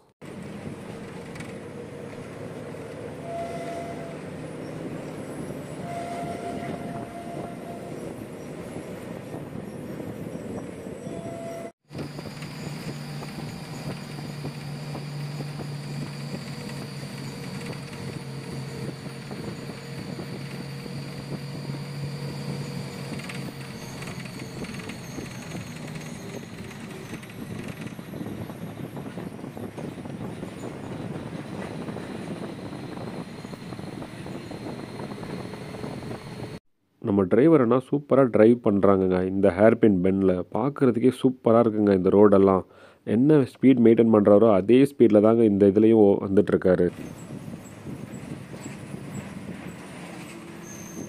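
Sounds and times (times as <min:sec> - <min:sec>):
bus engine and road noise: 0:00.0 - 0:36.6, 0:46.1 - 0:51.0
short high tones: 0:05.6 - 0:08.1.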